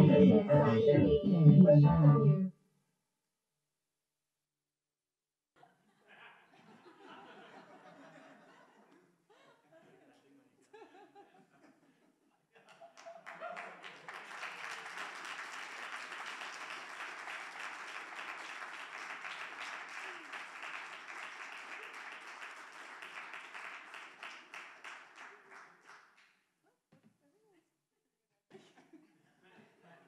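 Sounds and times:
audience applauding: 12.9 - 26.1.

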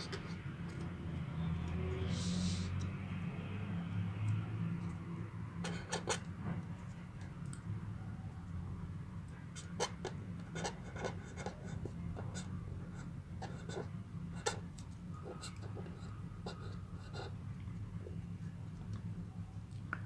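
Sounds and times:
pen scratching on paper: 5.6 - 6.2, 9.6 - 17.4.

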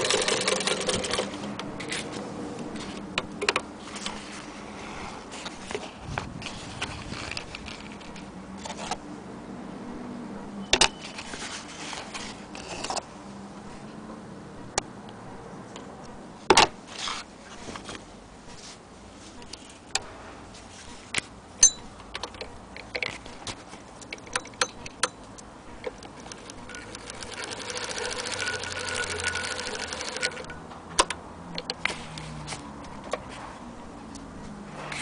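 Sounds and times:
sewing machine clattering: 0.0 - 1.3, 26.0 - 30.5
sewing machine clicks: 0.0 - 1.3, 25.9 - 30.5.

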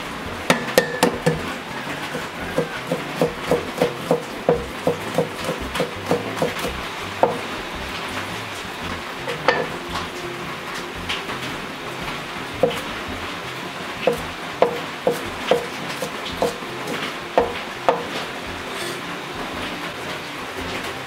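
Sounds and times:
cleaver chopping on cutting board: 0.5 - 1.5, 2.1 - 7.4, 14.1 - 18.1.

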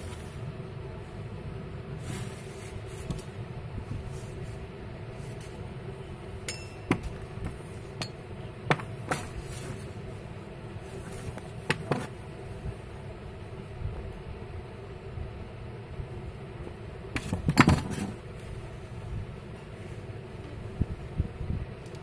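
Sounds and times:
low hum and hiss: 0.0 - 22.0
brief glassy ring: 6.5 - 6.9.

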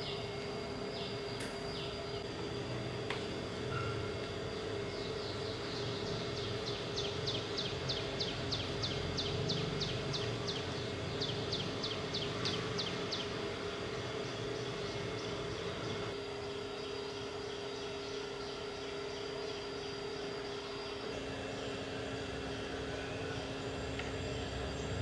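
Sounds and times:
steady low hum: 0.0 - 25.0
bird chirping: 4.8 - 13.5.

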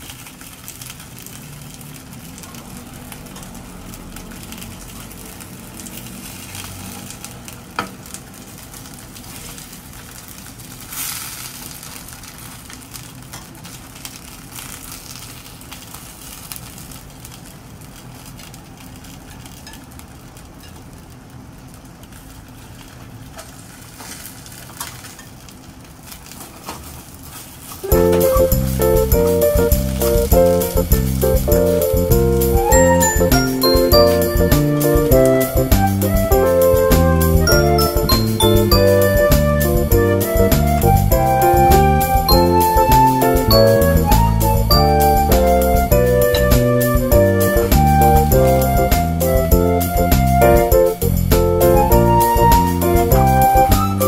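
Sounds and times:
dumplings sizzling in a pan: 0.0 - 35.0
music: 27.9 - 54.0.

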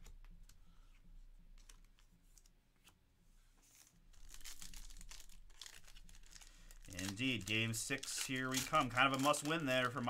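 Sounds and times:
foil wrapper tearing and crinkling: 4.1 - 10.0.

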